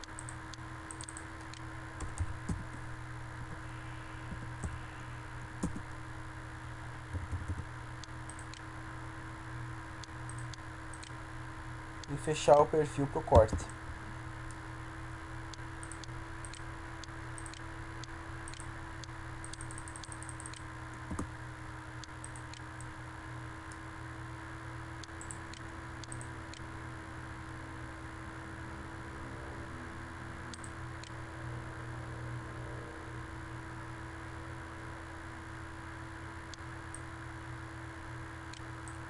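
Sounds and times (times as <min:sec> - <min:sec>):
computer mouse clicks: 0:00.0 - 0:02.8, 0:04.3 - 0:04.8, 0:05.6 - 0:05.9, 0:07.1 - 0:08.7, 0:10.0 - 0:11.2, 0:15.5 - 0:21.3, 0:22.0 - 0:22.9, 0:25.0 - 0:26.6, 0:30.5 - 0:31.2
electrical hum and hiss: 0:00.0 - 0:39.0.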